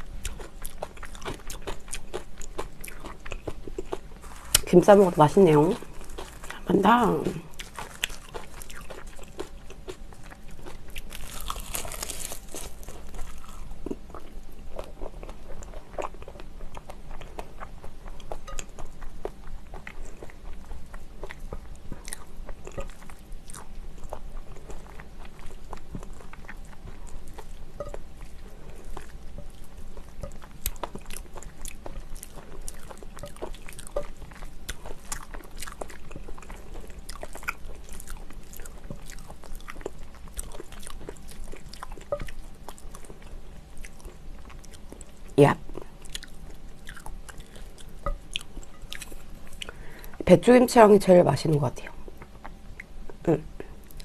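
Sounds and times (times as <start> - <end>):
person chewing food: 0.0 - 50.2.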